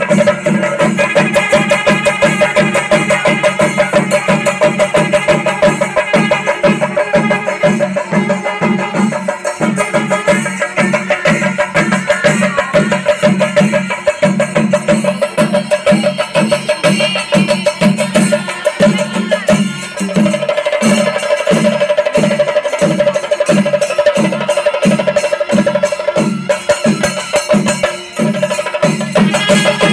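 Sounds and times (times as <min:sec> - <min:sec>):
drums beaten with sticks: 0:00.0 - 0:29.9.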